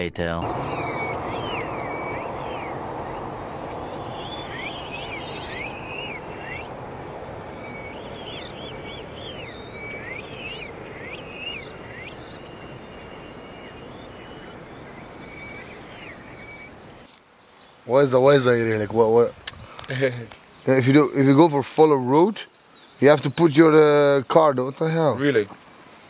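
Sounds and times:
steady rushing noise: 0.0s - 17.1s
small birds chirping: 0.0s - 26.0s.

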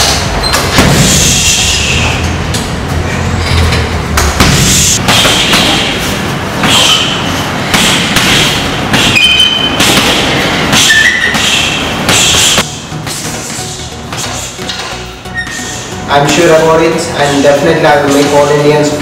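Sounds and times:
kicks and punches thudding on heavy bags: 0.0s - 1.5s, 4.1s - 7.0s, 7.6s - 14.8s.

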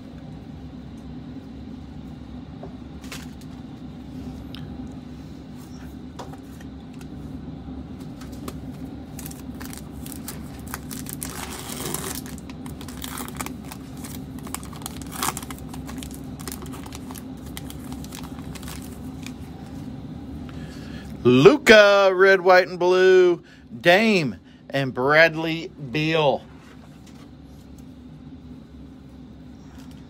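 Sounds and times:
low background hum: 0.0s - 30.0s
foil pack crinkling and tearing: 8.2s - 19.5s.

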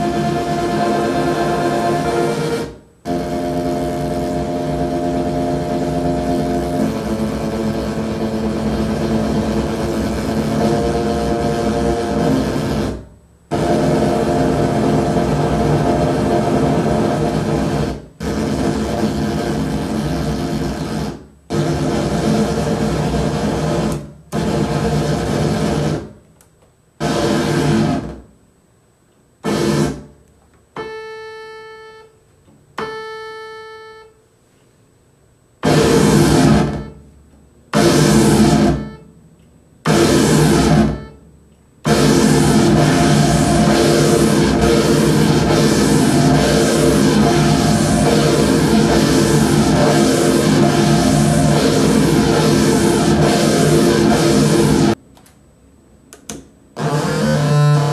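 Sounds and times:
pure-pitched synth notes: 0.0s - 20.9s, 41.9s - 55.0s
harsh noisy synthesizer tones: 0.0s - 26.2s, 27.0s - 28.3s, 29.4s - 30.1s, 35.6s - 37.0s, 37.7s - 39.1s, 39.8s - 41.2s, 41.8s - 55.0s, 56.8s - 57.9s.

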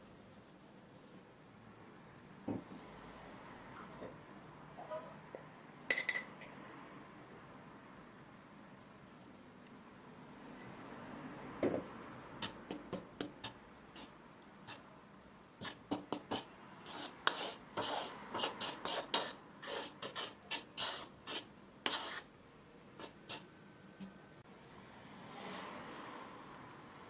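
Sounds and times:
spoon scraping and tapping bowl: 4.8s - 6.5s.

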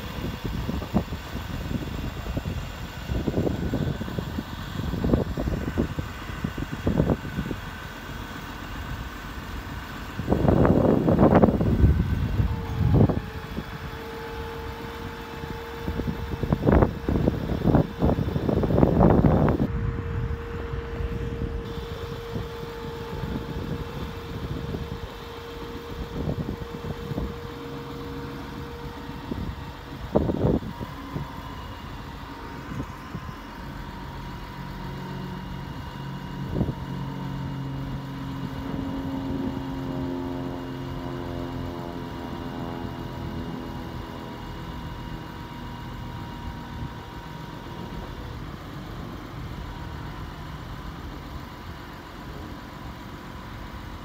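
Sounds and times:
diesel truck engine idling: 0.0s - 54.0s
steady hydraulic whine: 0.0s - 54.0s.

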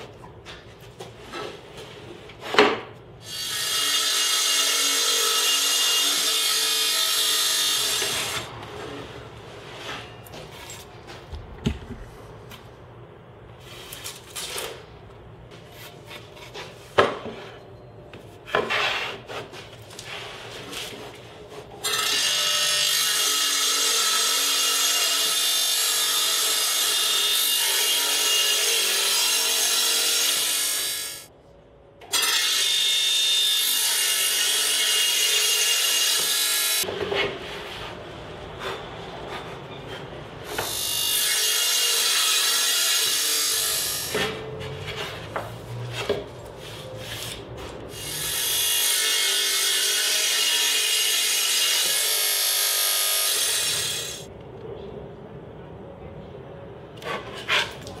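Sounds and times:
wooden boards knocking and sliding: 11.2s - 12.2s.

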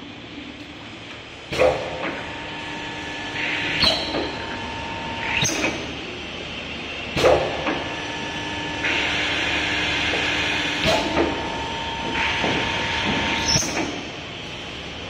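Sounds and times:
faint motor hum: 0.0s - 15.0s
pneumatic clacks: 1.0s - 6.0s, 7.1s - 8.1s, 8.7s - 14.2s.

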